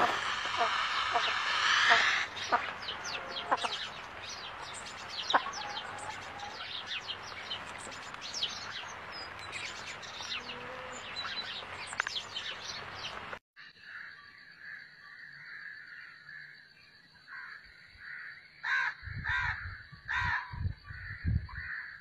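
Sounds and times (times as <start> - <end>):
steady hiss: 0.0 - 5.1
small birds chirping: 0.0 - 13.4.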